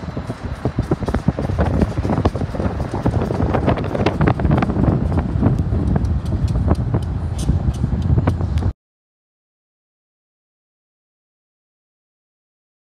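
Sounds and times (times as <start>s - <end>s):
car road noise rumble: 0.0s - 8.8s
wind buffeting microphone: 0.0s - 8.8s.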